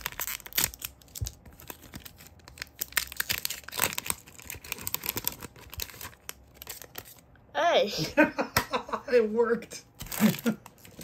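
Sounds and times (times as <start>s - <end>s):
plastic wrapper crinkling and tearing: 0.0s - 7.3s, 10.0s - 11.0s.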